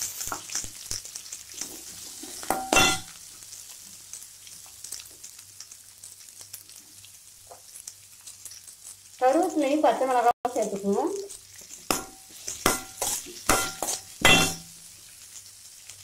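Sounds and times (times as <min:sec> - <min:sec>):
onions sizzling in hot oil: 0:00.0 - 0:16.0
spoon scraping pan: 0:01.6 - 0:03.2, 0:11.6 - 0:14.8
spoon clattering against pan: 0:02.4 - 0:03.1, 0:11.9 - 0:14.7.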